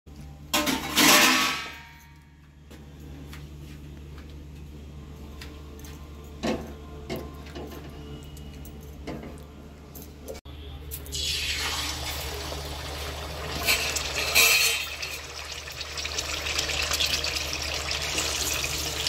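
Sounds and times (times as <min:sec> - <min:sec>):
metal bowl clanging: 0:00.6 - 0:02.1, 0:13.5 - 0:15.3.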